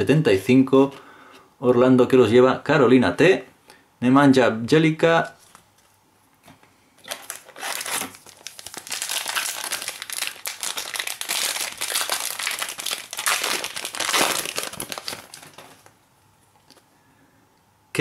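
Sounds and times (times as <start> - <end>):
foil wrapper crinkling: 7.0 - 16.0.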